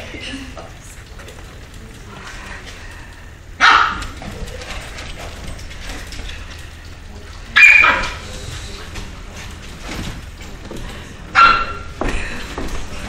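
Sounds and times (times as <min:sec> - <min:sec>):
dog barking: 0:03.6 - 0:04.2, 0:07.6 - 0:08.2, 0:11.3 - 0:11.9.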